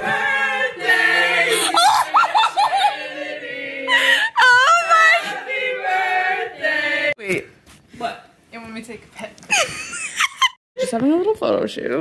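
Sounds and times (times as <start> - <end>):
group singing: 0.0 - 7.2
people laughing: 1.4 - 3.3.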